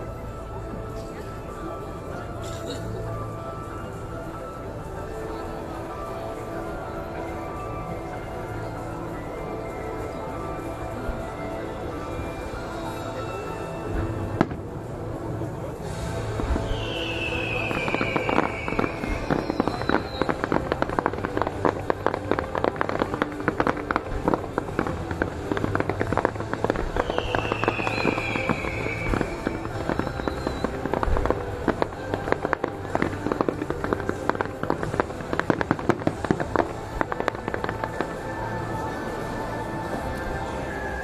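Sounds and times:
fireworks crackling: 0.0 - 41.0
falling firework whistle: 16.1 - 22.0, 25.4 - 33.2.

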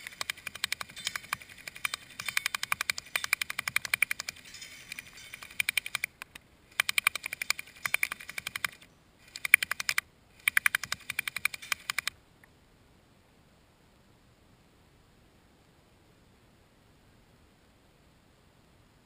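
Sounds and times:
airsoft gun firing bursts: 0.0 - 4.5.

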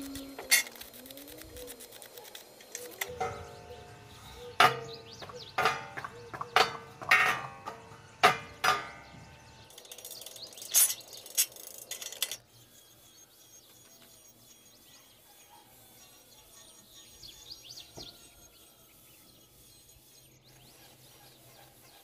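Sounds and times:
iron grill parts clanking: 2.7 - 12.4.

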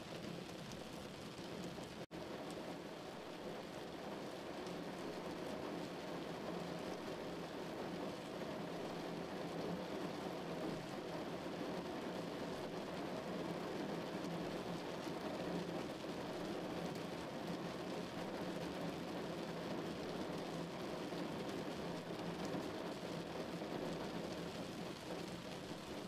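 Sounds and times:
rain falling on a car: 0.0 - 26.0
raindrop ticks: 0.2 - 2.6.

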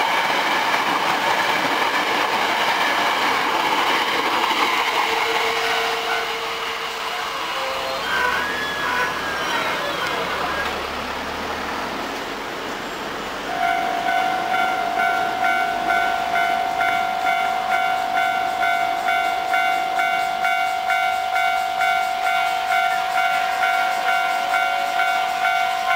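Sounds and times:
electric train receding: 0.0 - 25.9
level crossing warning bell: 13.5 - 25.9.

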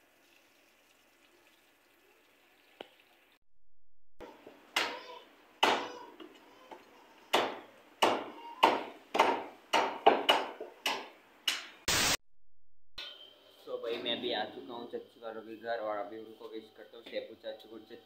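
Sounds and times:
cleavers chopping meat and bone: 4.8 - 6.0, 7.3 - 11.7.

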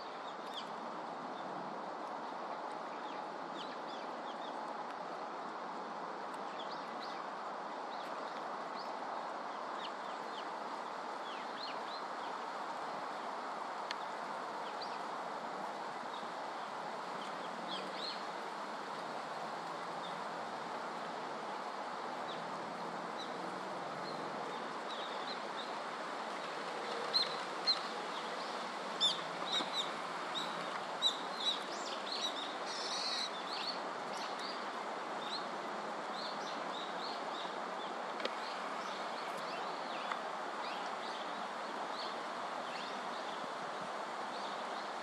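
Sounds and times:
steady background hiss: 0.0 - 45.0.

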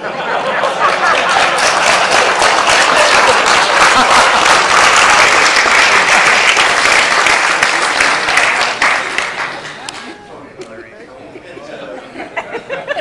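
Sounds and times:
audience applauding: 0.6 - 10.3.

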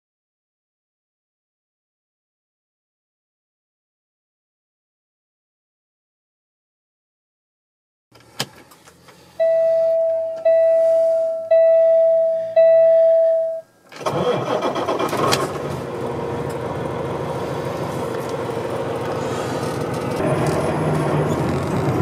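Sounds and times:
dashboard warning beeps: 9.4 - 13.7
diesel truck engine idling: 14.0 - 22.0.

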